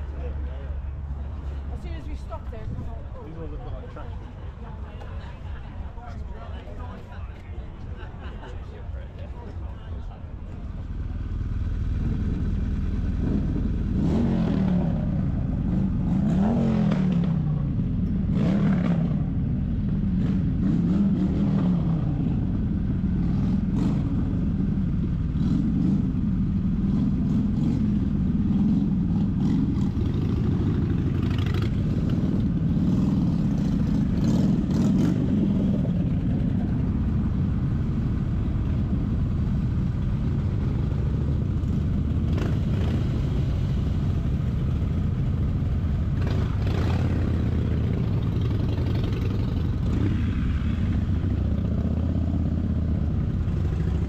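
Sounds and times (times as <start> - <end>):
motorcycle engine revving: 11.6 - 54.0.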